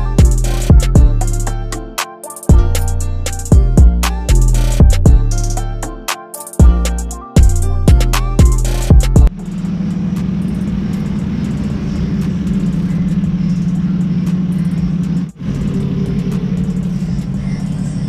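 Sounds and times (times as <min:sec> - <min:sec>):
car engine idling: 0:06.6 - 0:18.0.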